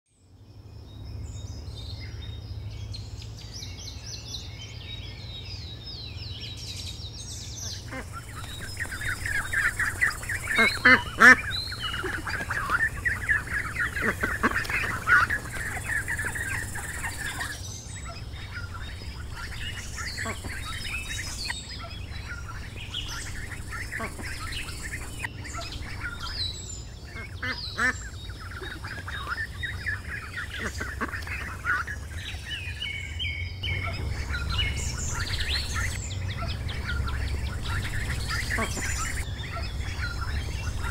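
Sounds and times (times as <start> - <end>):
steady low hum: 0.2 - 40.9
ducklings peeping: 1.5 - 40.9
higher chirping: 8.0 - 26.6, 33.6 - 40.9.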